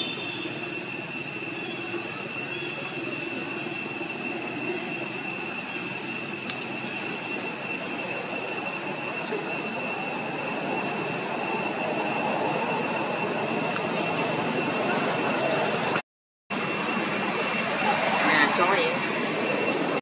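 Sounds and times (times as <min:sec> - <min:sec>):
high-pitched tones: 0:00.0 - 0:16.0.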